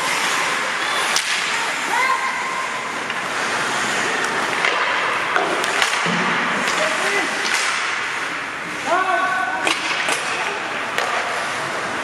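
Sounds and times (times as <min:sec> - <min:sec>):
skate blades carving ice: 0:02.9 - 0:08.4
sticks clacking on puck: 0:04.2 - 0:06.8, 0:07.4 - 0:08.0, 0:09.6 - 0:11.4.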